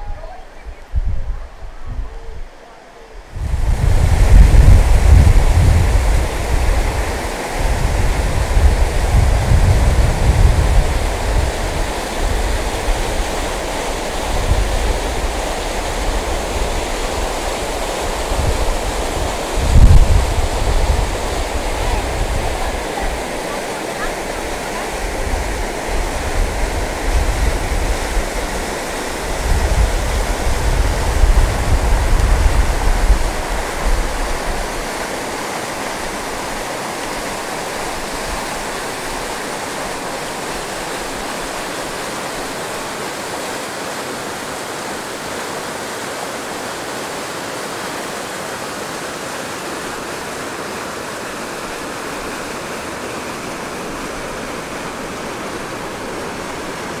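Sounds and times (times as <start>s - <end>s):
wind buffeting microphone: 0.0s - 35.0s
whitewater rushing over boulders: 3.2s - 57.0s.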